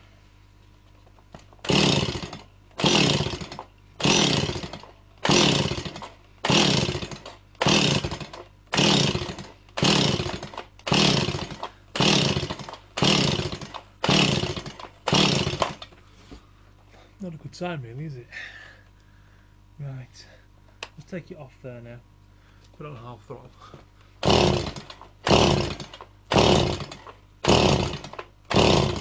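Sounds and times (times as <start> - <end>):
chainsaw recoil starter rasping: 1.3 - 15.9, 24.2 - 29.0.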